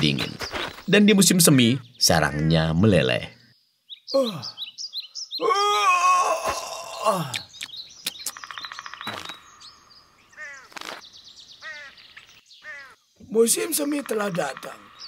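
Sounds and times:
drawn-out falling call: 8.3s - 10.9s, 11.6s - 13.0s.

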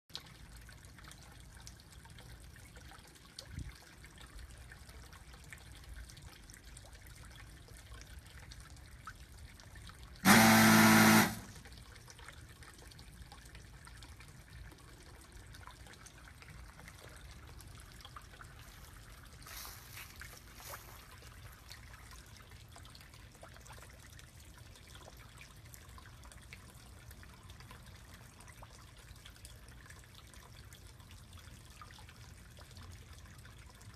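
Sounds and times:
pond water trickling: 0.1s - 33.9s
fish feeder motor whirring: 10.2s - 11.6s.

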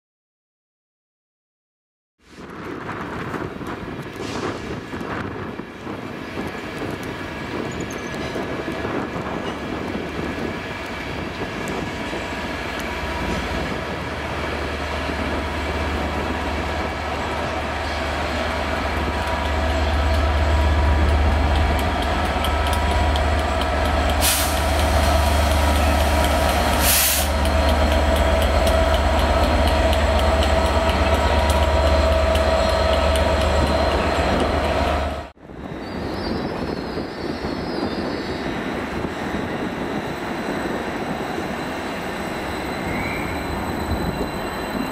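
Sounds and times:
diesel locomotive engine humming: 4.7s - 35.4s
air hissing: 24.1s - 27.4s.

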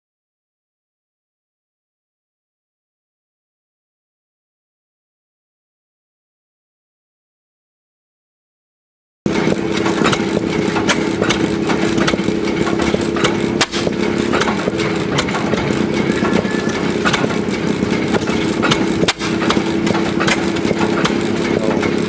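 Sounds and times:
hit-and-miss engine running: 9.3s - 22.0s.

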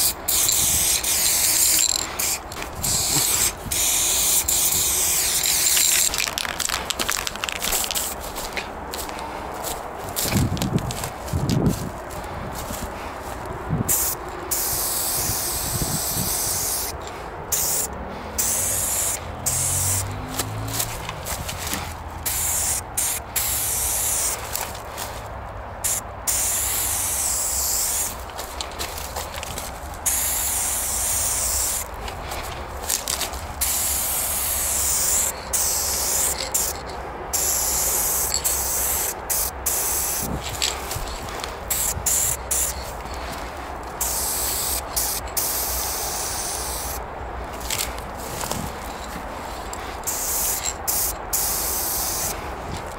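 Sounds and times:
spray-paint can hissing: 0.0s - 8.2s, 13.9s - 20.3s, 21.6s - 24.6s, 25.8s - 28.2s, 30.0s - 31.9s, 33.6s - 40.3s, 41.7s - 42.9s, 44.0s - 47.0s, 50.0s - 52.3s.

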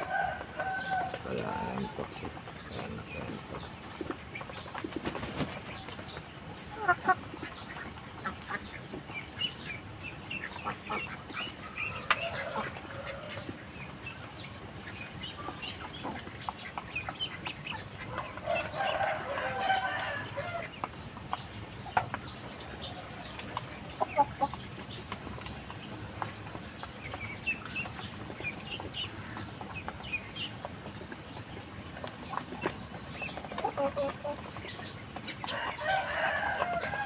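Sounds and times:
chickens clucking: 0.0s - 37.0s.

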